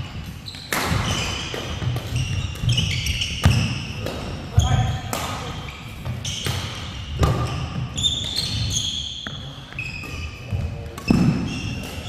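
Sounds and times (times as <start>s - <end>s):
shoes squeaking on floor: 0.0s - 12.0s
racket hitting shuttlecock: 0.2s - 4.4s, 5.0s - 9.4s, 10.9s - 12.0s.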